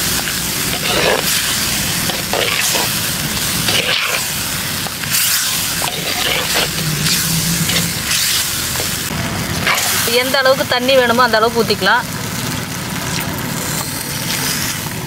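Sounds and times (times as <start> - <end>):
gravy sizzling in a pan: 0.0 - 15.0
spoon stirring and scraping: 0.6 - 9.1.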